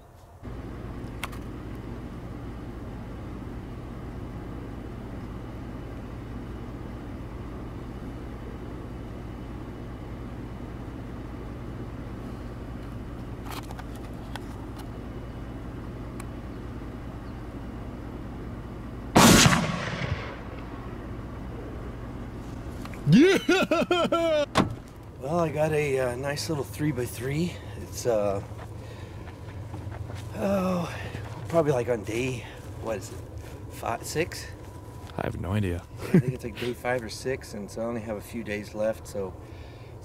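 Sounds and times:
steady low hum: 0:00.0 - 0:40.0
rifle shot: 0:19.2 - 0:20.7.

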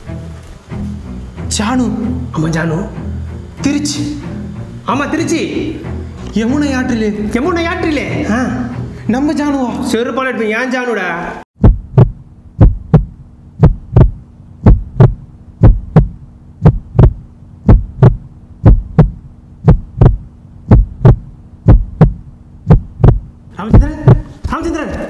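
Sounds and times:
steady low hum: 0:00.0 - 0:09.1, 0:11.6 - 0:25.0
heartbeat thumps: 0:11.6 - 0:25.0.

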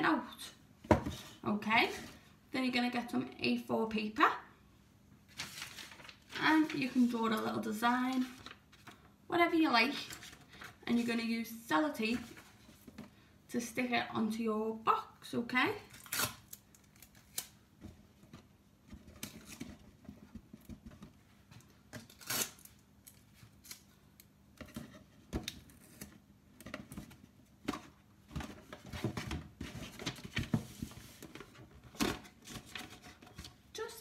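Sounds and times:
paper rustling on cardboard: 0:05.3 - 0:07.2
tape pulled off roll and torn: 0:22.0 - 0:24.0.

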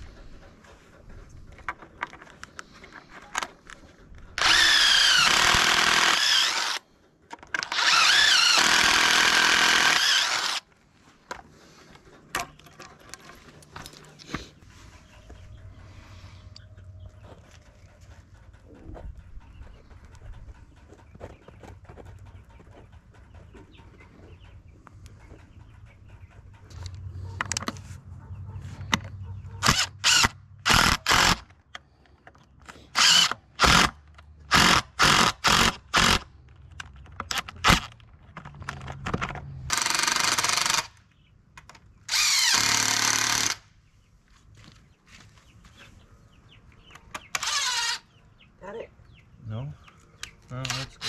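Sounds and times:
power drill running: 0:04.4 - 0:06.8, 0:07.6 - 0:10.6, 0:29.6 - 0:31.4, 0:33.0 - 0:33.9, 0:34.5 - 0:36.2, 0:39.7 - 0:41.0, 0:42.1 - 0:43.7, 0:47.3 - 0:48.0.

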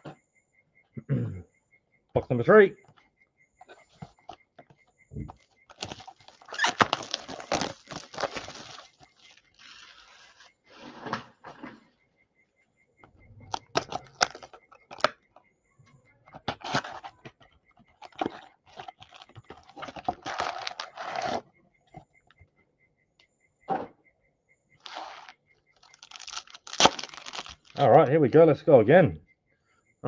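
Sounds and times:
cellophane crinkling: 0:05.3 - 0:11.0, 0:13.5 - 0:15.1, 0:16.4 - 0:17.2, 0:17.9 - 0:21.4, 0:24.8 - 0:27.9
foil packs rustling: 0:05.3 - 0:11.2, 0:13.5 - 0:15.1, 0:16.4 - 0:17.1, 0:18.0 - 0:21.4, 0:24.8 - 0:27.9.

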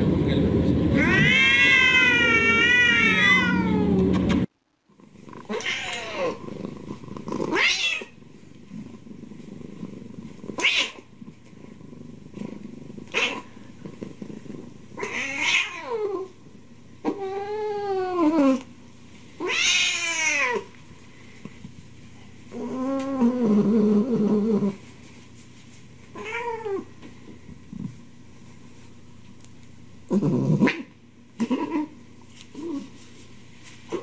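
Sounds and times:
cats meowing: 0:00.9 - 0:04.3, 0:05.4 - 0:06.4, 0:07.4 - 0:08.2, 0:10.6 - 0:11.1, 0:13.1 - 0:13.5, 0:15.0 - 0:16.4, 0:17.0 - 0:18.6, 0:19.4 - 0:20.7, 0:26.2 - 0:26.9, 0:30.6 - 0:31.9.

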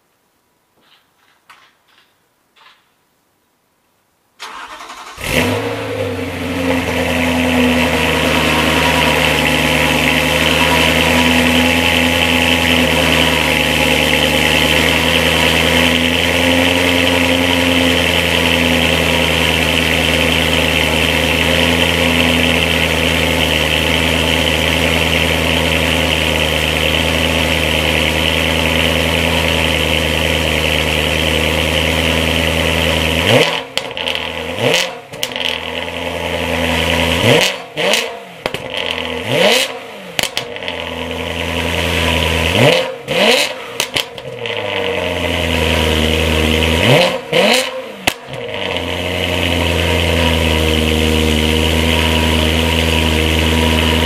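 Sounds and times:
car engine starting and idling: 0:04.4 - 0:54.0.

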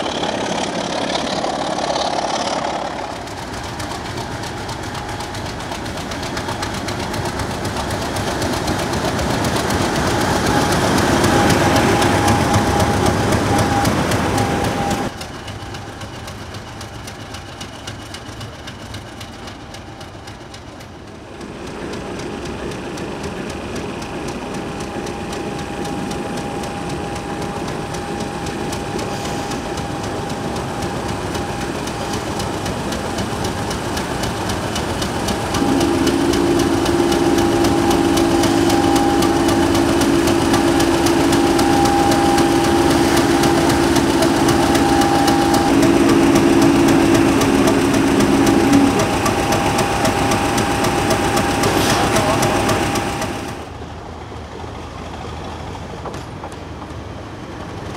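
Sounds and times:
diesel locomotive engine running: 0:00.0 - 0:57.9
low two-note horn tone: 0:35.6 - 0:49.6.

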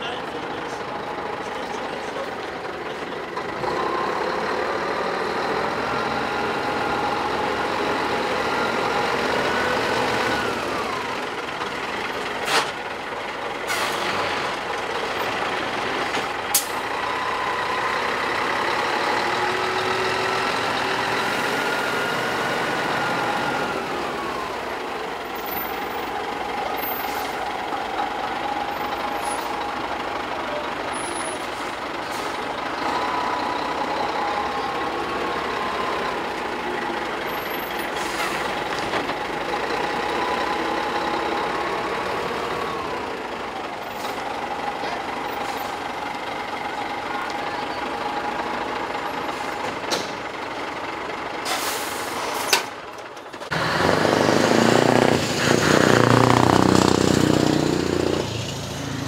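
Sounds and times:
truck diesel engine revving: 0:00.0 - 0:59.0.

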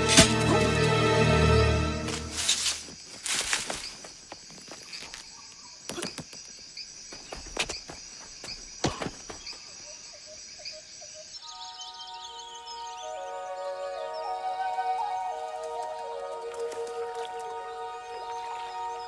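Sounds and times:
music: 0:00.0 - 0:02.6, 0:12.5 - 0:19.0
insects chirring: 0:00.0 - 0:19.0
footsteps and thuds: 0:07.1 - 0:09.6.

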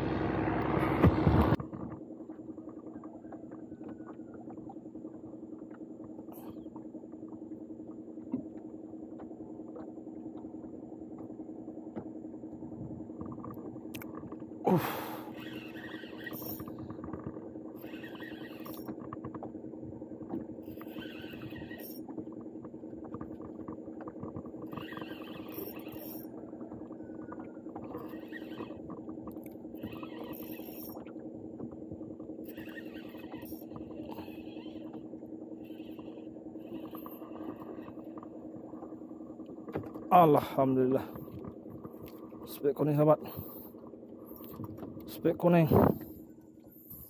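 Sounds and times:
engine hum: 0:00.0 - 0:47.0
fishing reel being cranked: 0:15.0 - 0:16.9, 0:17.8 - 0:19.0, 0:20.7 - 0:22.1, 0:24.6 - 0:26.3, 0:27.8 - 0:31.1, 0:32.5 - 0:38.3.

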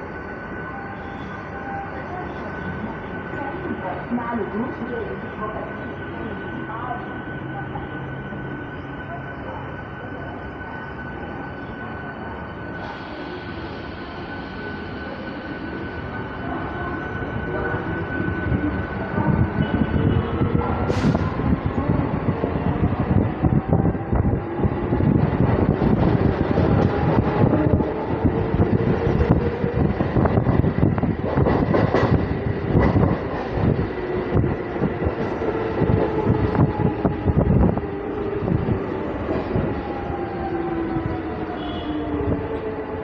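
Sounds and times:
train wheels clattering over rails: 0:31.1 - 0:33.7.

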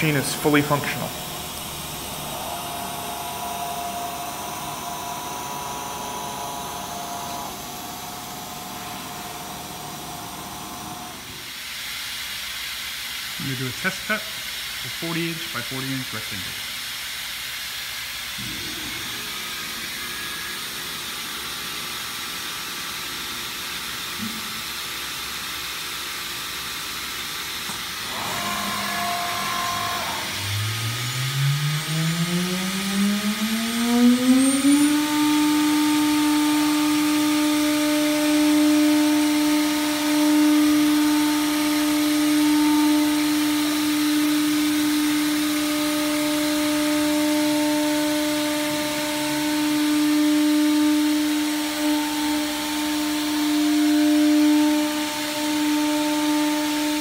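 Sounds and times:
router spindle whine: 0:00.0 - 0:11.5, 0:18.4 - 0:21.6, 0:27.6 - 0:57.0
steady machine hiss: 0:00.0 - 0:31.9.

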